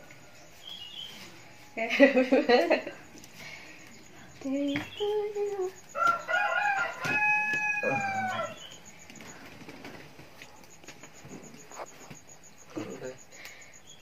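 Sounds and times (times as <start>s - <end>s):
rooster crowing: 5.8s - 8.9s.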